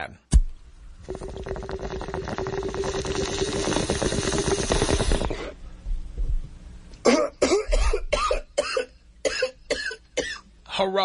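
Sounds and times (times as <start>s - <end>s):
water bubbling through a bong: 0.9s - 5.6s
person coughing: 7.0s - 10.4s.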